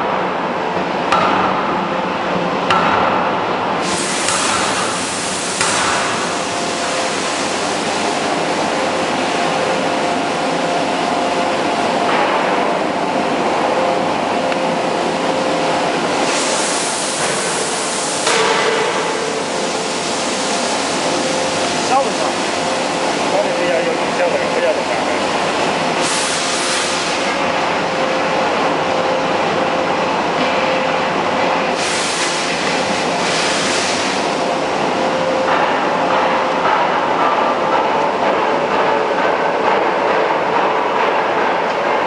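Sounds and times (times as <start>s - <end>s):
sharp knocks: 2.7s - 3.5s
hydraulic hiss: 3.8s - 7.8s, 16.2s - 20.9s, 26.0s - 27.3s, 31.7s - 32.6s.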